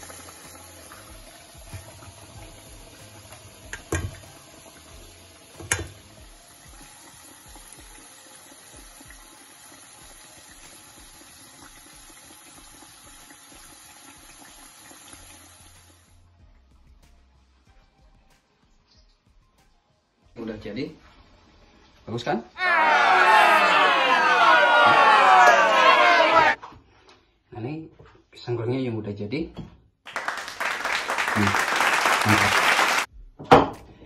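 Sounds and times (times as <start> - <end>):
food sizzling in hot oil: 0.0 - 16.2.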